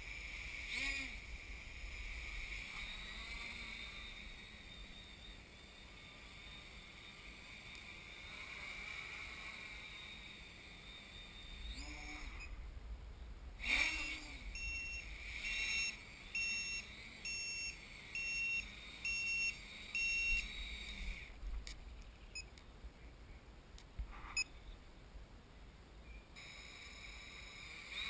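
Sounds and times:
electric motors whining: 0.0s - 12.6s, 13.6s - 21.4s
electronic buzzer beeping: 11.4s - 12.6s, 13.6s - 21.2s.

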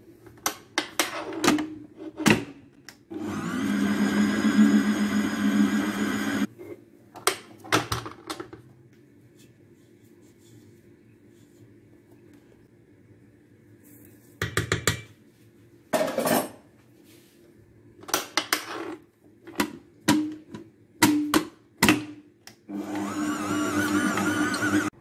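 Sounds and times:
stand mixer motor running: 3.2s - 6.5s, 22.7s - 24.9s.

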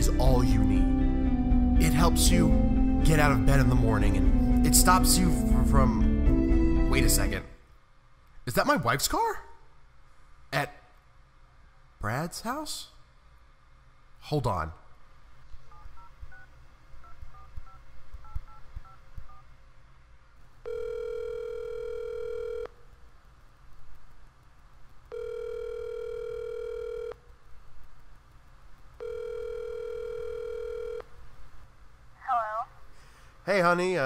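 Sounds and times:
keypad dialing tones: 15.7s - 19.4s, 25.1s - 27.2s, 29.0s - 31.0s
phone ringback tone: 20.6s - 22.8s, 25.1s - 27.2s, 29.0s - 31.1s.

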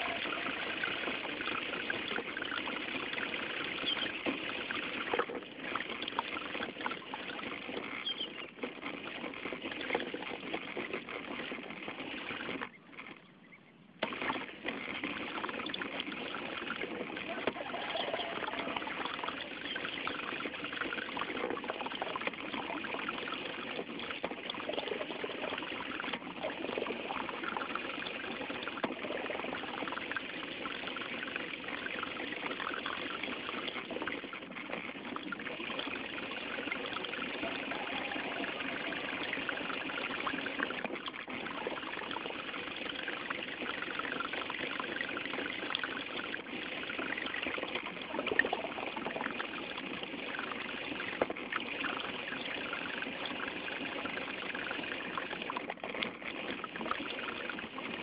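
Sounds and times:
water rushing along boat hull: 0.0s - 13.2s, 14.0s - 58.0s.

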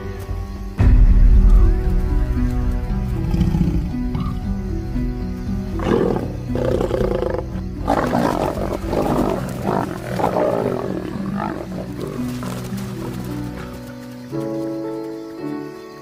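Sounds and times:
background music with held notes: 0.0s - 16.0s
lions snarling and growling: 3.2s - 4.4s, 5.7s - 14.1s.

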